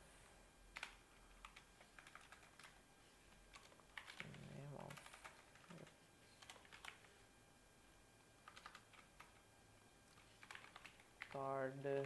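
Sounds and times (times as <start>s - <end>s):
keyboard typing: 0.7s - 7.1s, 8.4s - 9.5s, 10.1s - 12.0s.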